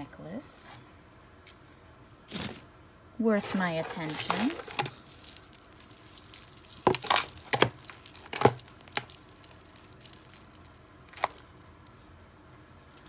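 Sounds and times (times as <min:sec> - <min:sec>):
jewelry clinking in cardboard box: 0:03.4 - 0:12.0.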